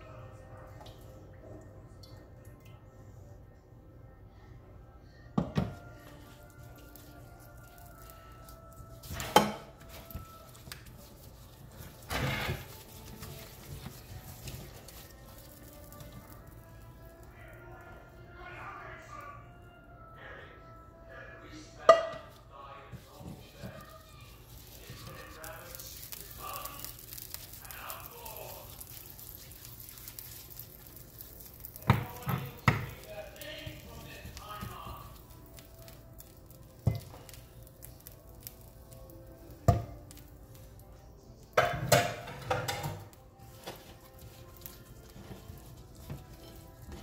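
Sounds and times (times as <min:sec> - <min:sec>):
steak scraping on plate: 0:08.9 - 0:16.2
soft handling noises: 0:22.2 - 0:41.5.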